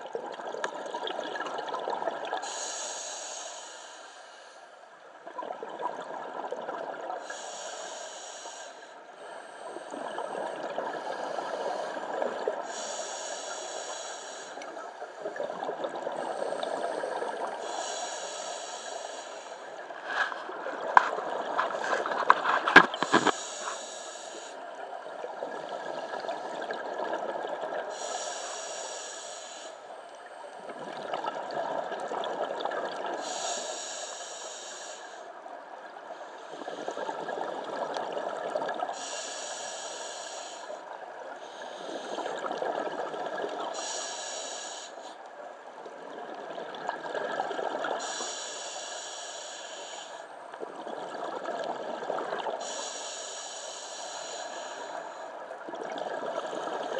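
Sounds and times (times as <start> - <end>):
regulator inhale hiss: 2.4 - 4.8, 7.2 - 15.3, 16.0 - 26.7, 27.9 - 30.7, 33.1 - 35.4, 38.8 - 42.7, 43.6 - 45.3, 47.8 - 50.6, 52.1 - 55.6.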